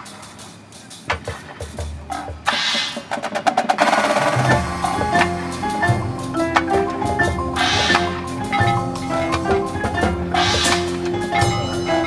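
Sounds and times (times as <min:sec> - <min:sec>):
percussion taps: 0:01.1 - 0:03.6, 0:04.4 - 0:12.0
marching band sustained chords: 0:03.4 - 0:12.0.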